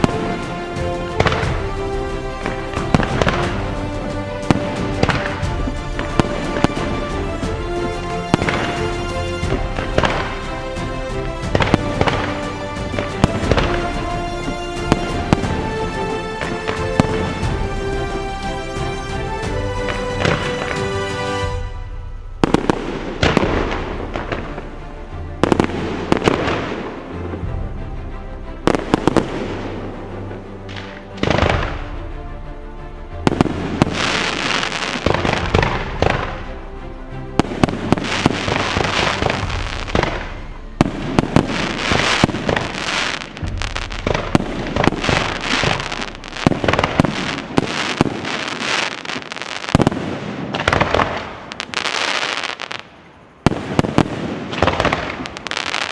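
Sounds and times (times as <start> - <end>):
firework crackling: 0.0 - 27.5, 28.6 - 32.0, 33.2 - 55.9
music playing: 0.0 - 55.9
firework shells bursting: 37.4 - 55.9.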